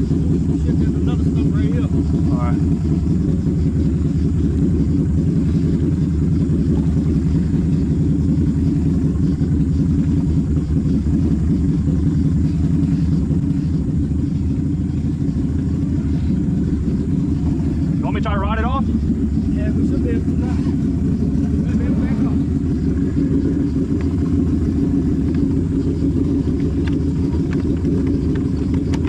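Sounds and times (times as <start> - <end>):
quad bike engine idling: 0.0 - 29.0.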